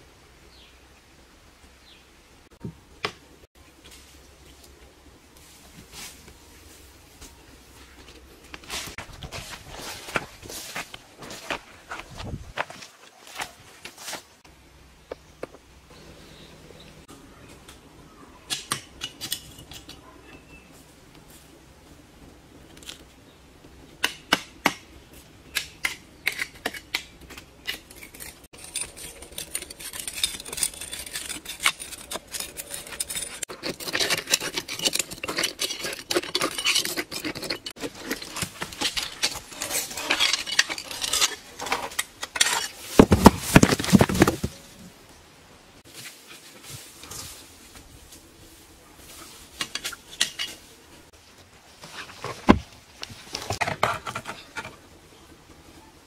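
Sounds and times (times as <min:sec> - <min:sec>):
metal blade scraping stone: 0:26.3 - 0:44.2.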